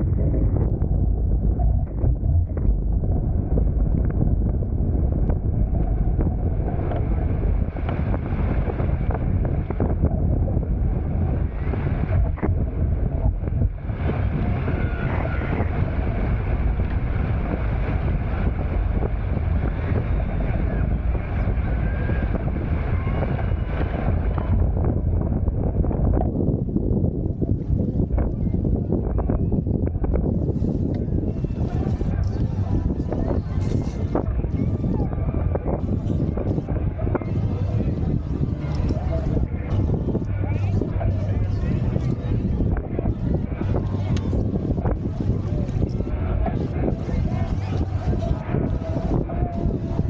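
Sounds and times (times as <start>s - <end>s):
water rushing along hulls: 0.0s - 50.0s
wind buffeting microphone: 0.0s - 50.0s.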